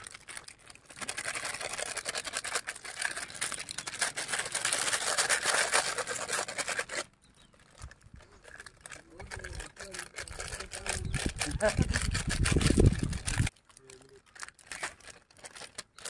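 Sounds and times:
plastic sachets crinkling: 0.0s - 16.0s.

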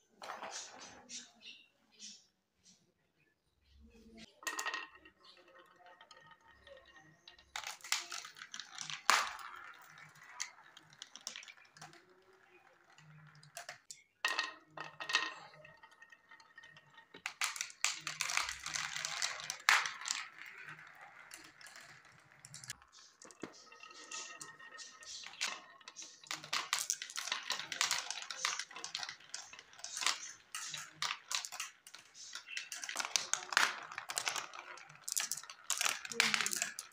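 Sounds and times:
marbles rattling down plastic track: 4.3s - 36.9s.

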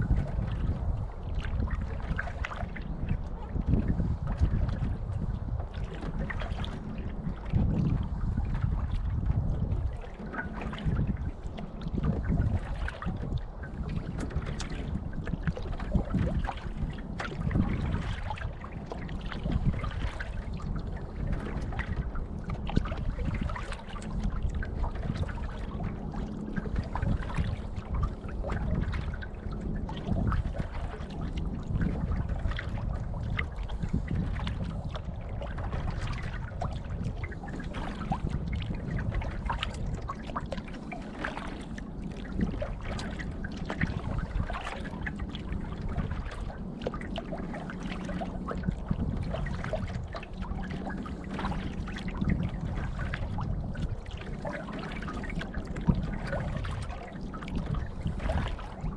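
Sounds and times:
small splashes and drips: 0.0s - 58.9s
water lapping against canoe hull: 0.0s - 58.9s.

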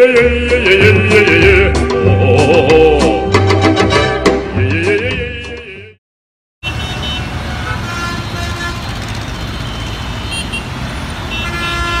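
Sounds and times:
music: 0.0s - 6.0s
car horns tooting: 6.6s - 12.0s
city road traffic: 6.6s - 12.0s.

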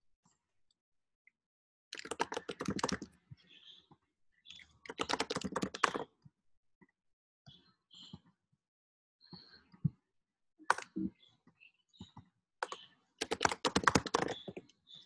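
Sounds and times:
typing on keyboard: 1.9s - 3.1s, 4.8s - 6.1s, 12.6s - 14.7s.

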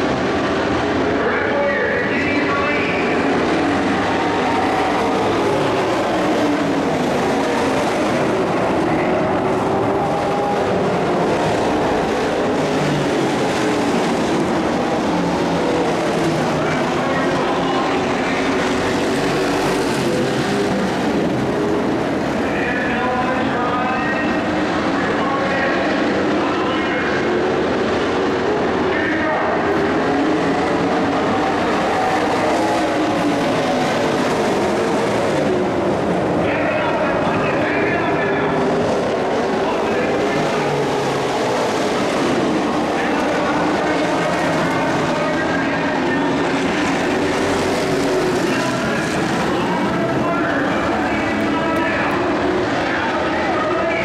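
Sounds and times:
race truck engines passing: 0.0s - 54.0s.

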